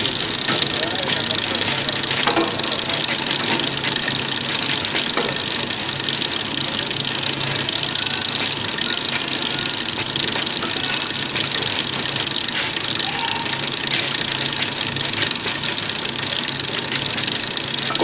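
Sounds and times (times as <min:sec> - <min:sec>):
conveyor line mechanical hum: 0:00.0 - 0:18.0.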